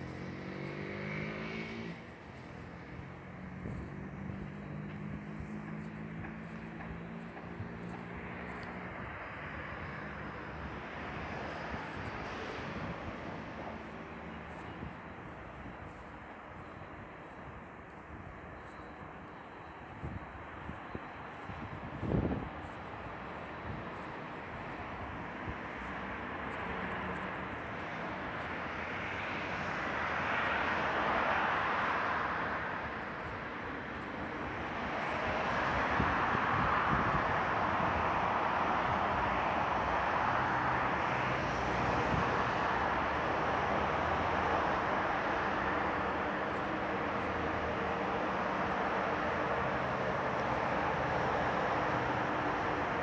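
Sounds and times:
passing vehicle rushing: 0.0s - 7.9s
outdoor street background: 0.0s - 53.0s.

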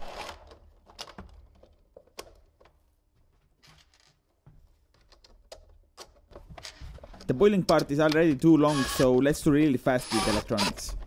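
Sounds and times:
hard plastic parts clicking: 5.0s - 8.5s.

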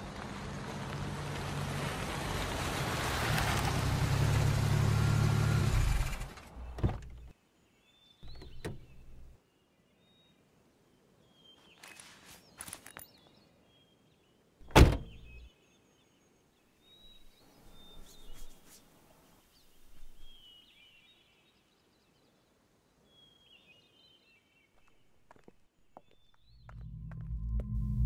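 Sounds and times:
birds chirping: 6.4s - 22.4s
car door slamming: 6.6s - 7.3s, 8.2s - 9.3s, 14.7s - 15.4s.

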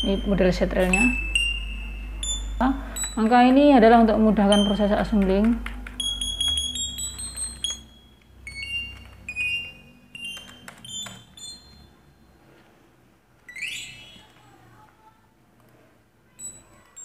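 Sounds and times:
chime-like electronic notes: 0.0s - 5.2s, 5.8s - 12.4s, 13.5s - 14.4s
low hum: 0.0s - 10.2s.

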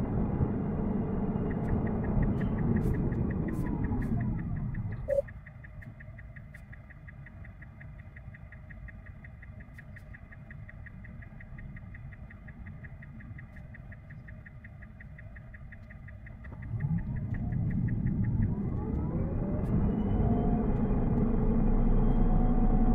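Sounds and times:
low rumble: 0.0s - 6.9s, 10.5s - 22.9s
rapid even ticking: 1.4s - 19.7s.

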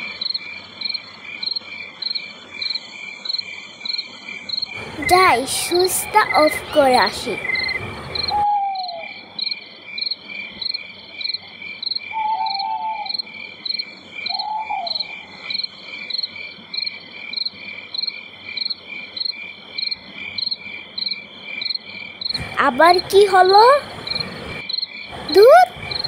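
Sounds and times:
crickets chirping: 0.0s - 26.0s
short lower calls: 8.2s - 9.3s, 12.1s - 13.2s.

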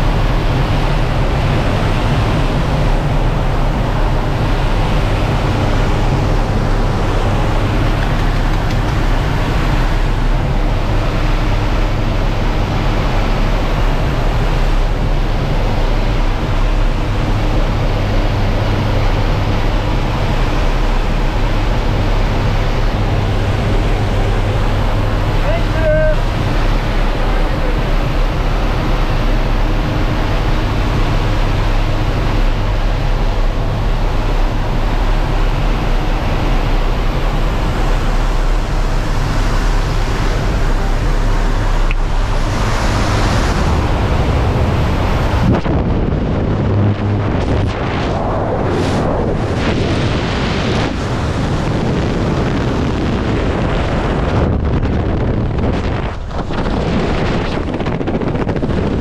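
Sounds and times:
strong wind on microphone: 0.0s - 59.0s.

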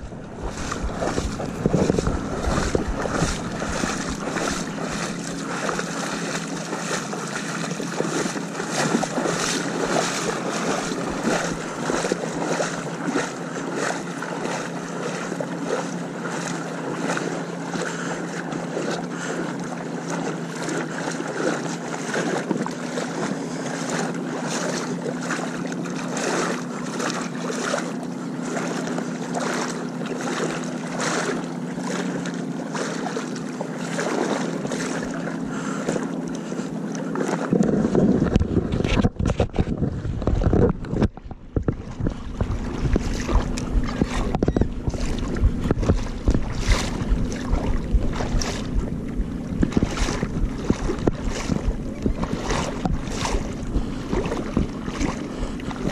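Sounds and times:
wind buffeting microphone: 0.0s - 14.5s, 37.3s - 55.9s
boat motor running: 0.0s - 55.9s.

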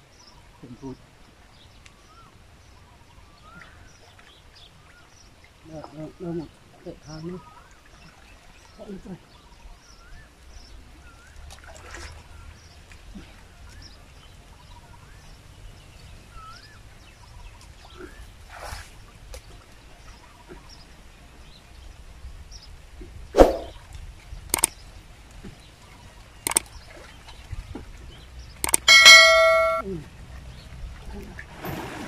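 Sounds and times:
birds chirping: 0.0s - 11.4s, 24.4s - 30.7s
water sloshing from wading: 11.0s - 14.6s, 24.6s - 32.0s
sharp clicks or splashes: 24.5s - 24.8s, 26.4s - 27.0s, 28.6s - 29.8s.

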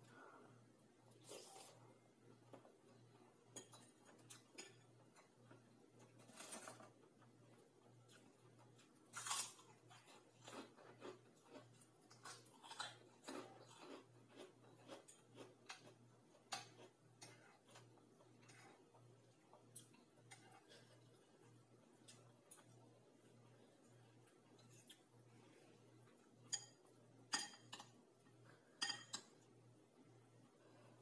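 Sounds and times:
chewing: 8.0s - 22.8s
cutlery clicking against bowl: 26.5s - 27.9s.

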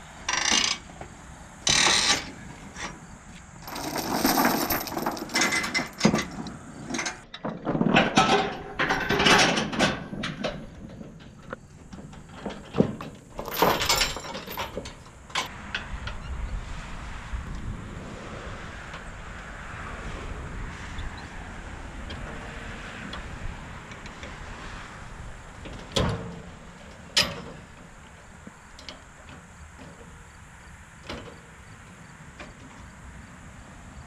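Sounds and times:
steel chains rattling and clanking: 3.6s - 15.5s.

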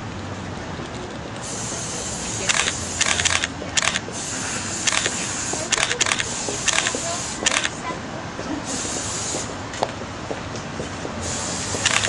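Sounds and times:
camera shutters clicking: 2.5s - 4.0s, 4.9s - 7.8s, 11.8s - 12.0s.

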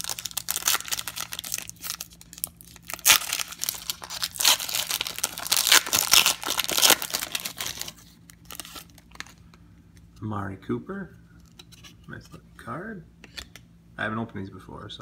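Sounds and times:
foil wrapper tearing and crinkling: 0.0s - 9.3s.

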